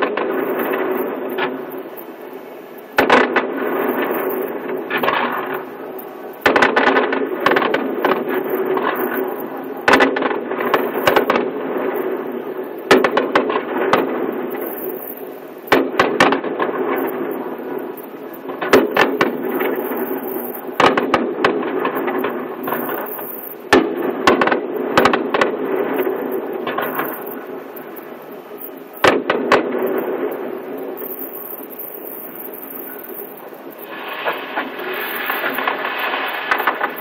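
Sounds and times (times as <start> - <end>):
fireworks bangs: 0.0 - 37.0
fireworks crackling: 0.0 - 37.0
steady background hum: 0.0 - 37.0.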